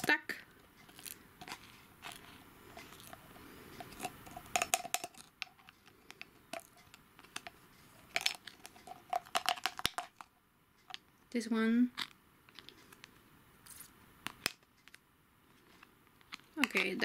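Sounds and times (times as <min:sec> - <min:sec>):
rhinestones clicking into glass jar: 0:03.8 - 0:05.3.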